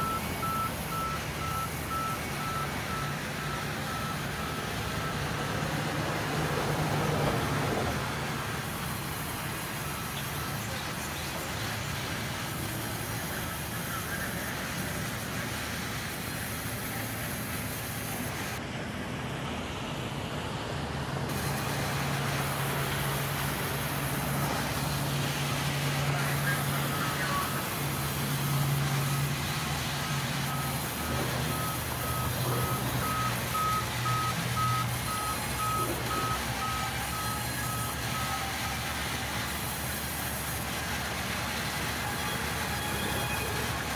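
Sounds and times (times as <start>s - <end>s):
reversing alarm beeping: 0.0s - 5.5s, 8.6s - 11.2s, 22.4s - 39.4s, 41.9s - 43.8s.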